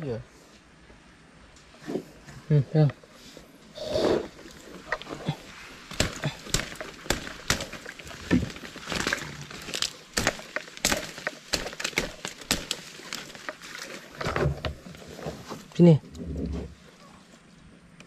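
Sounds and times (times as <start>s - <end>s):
twigs and leaves crackling: 3.0s - 15.8s.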